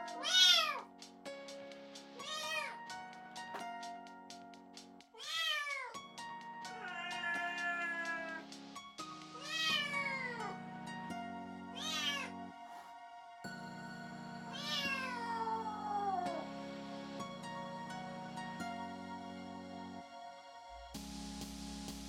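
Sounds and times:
soft background music: 0.0s - 22.0s
kitten meowing: 0.2s - 0.9s, 2.2s - 2.8s, 5.2s - 6.0s, 6.8s - 8.4s, 9.4s - 10.5s, 11.8s - 12.3s, 14.6s - 16.4s.

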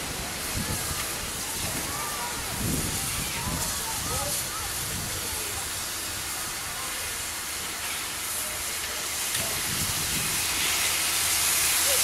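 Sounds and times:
steam hissing: 0.0s - 12.0s.

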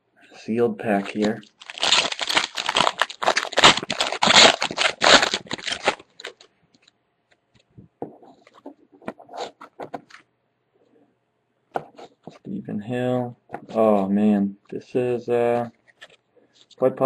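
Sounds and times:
foil wrapper crinkling: 1.0s - 6.9s.

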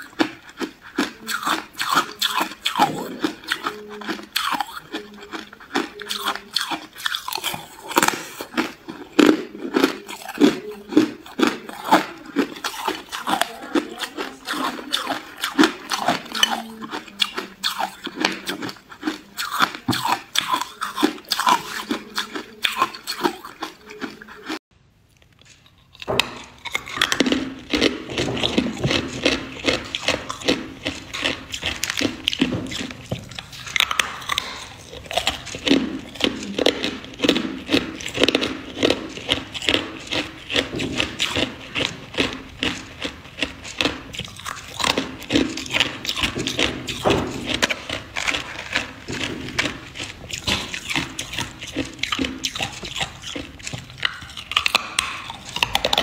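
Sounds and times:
ice being chewed: 0.0s - 56.0s.

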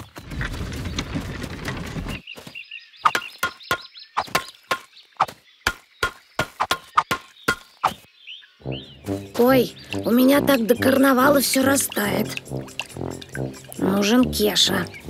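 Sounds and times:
heavy wheeled cart rumbling: 0.0s - 2.3s.

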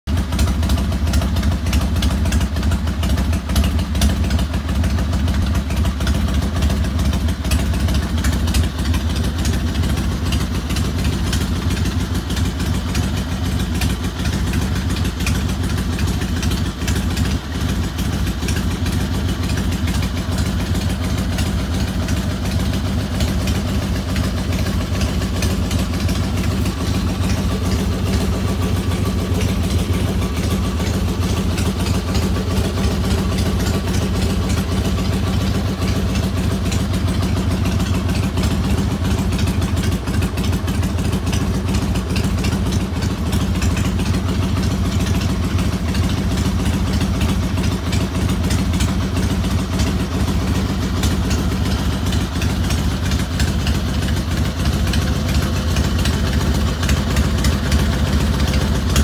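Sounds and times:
motorcycle engine idling: 0.0s - 59.0s.

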